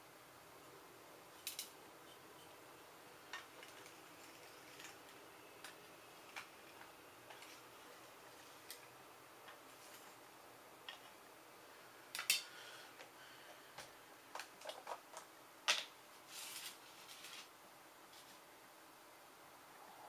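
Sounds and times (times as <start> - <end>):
tiny components clicking and scraping: 1.3 - 2.6, 3.3 - 10.2.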